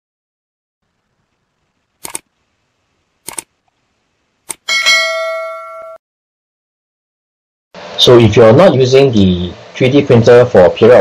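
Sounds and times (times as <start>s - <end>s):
mouse-click sound effects: 2.0s - 2.2s, 3.3s - 3.5s
bell chime ringing: 4.7s - 6.0s.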